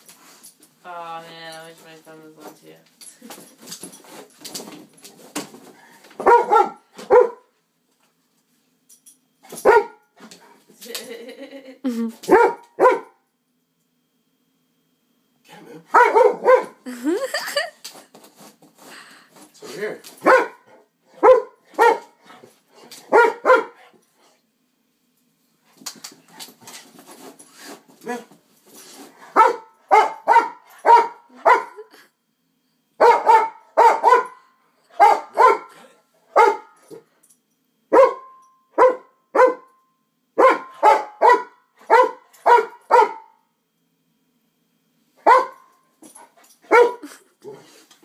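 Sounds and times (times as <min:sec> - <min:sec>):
dog barking: 0:06.2 - 0:07.5, 0:09.6 - 0:10.0, 0:12.3 - 0:13.2, 0:15.9 - 0:16.8, 0:20.2 - 0:22.2, 0:23.1 - 0:23.8, 0:29.3 - 0:31.9, 0:33.0 - 0:36.8, 0:37.9 - 0:39.7, 0:40.4 - 0:43.4, 0:45.2 - 0:45.7, 0:46.7 - 0:47.1.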